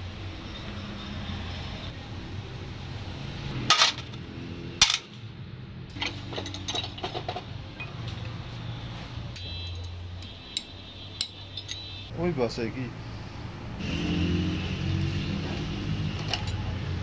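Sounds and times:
metal parts clinking: 5.9 - 8.0, 10.6 - 12.0, 16.2 - 16.7.

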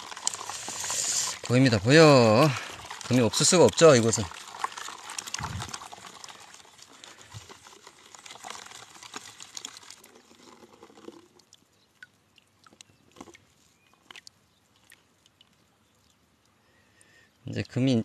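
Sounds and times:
water and sand swishing in pan: 0.0 - 11.5.

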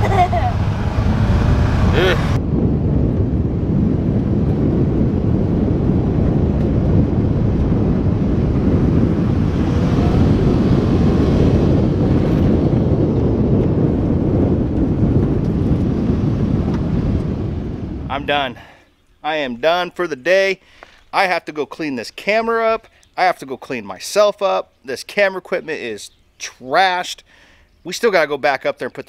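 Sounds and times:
wind buffeting microphone: 0.0 - 19.9.

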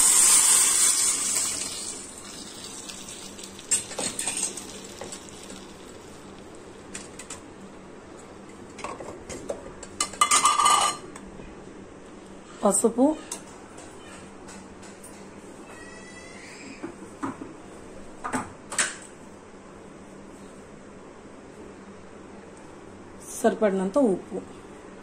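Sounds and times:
liquid sizzling in hot oil: 0.0 - 7.3
utensils clattering against pot: 3.7 - 5.3, 10.0 - 11.1.

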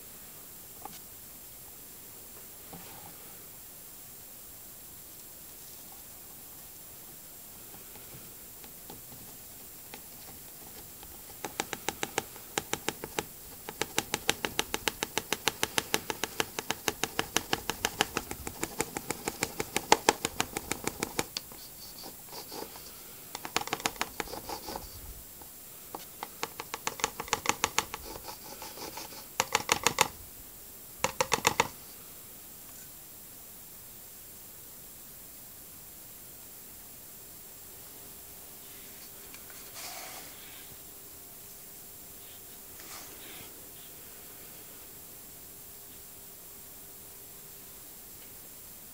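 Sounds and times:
powder tapping from a cup: 9.9 - 22.6, 23.4 - 24.8, 26.0 - 30.2, 31.0 - 31.8.

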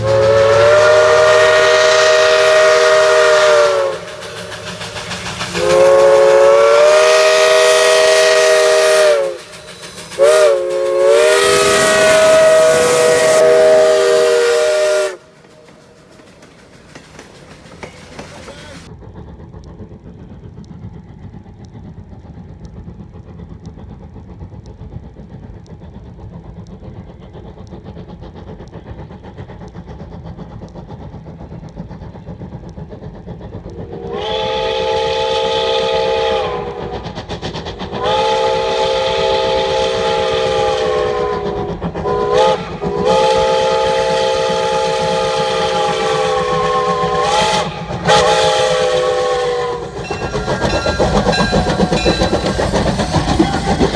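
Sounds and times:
chime steam whistle blasts: 0.0 - 15.6, 34.0 - 37.0, 38.0 - 53.9
steam locomotive rumbling: 0.0 - 53.9.

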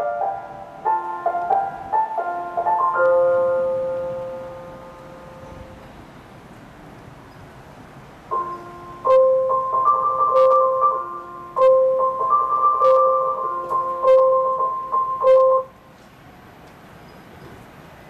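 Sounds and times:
electronic chime melody: 8.3 - 15.7.

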